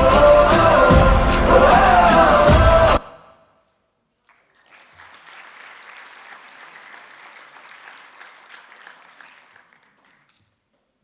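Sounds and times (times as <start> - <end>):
audience applauding: 4.2 - 10.6.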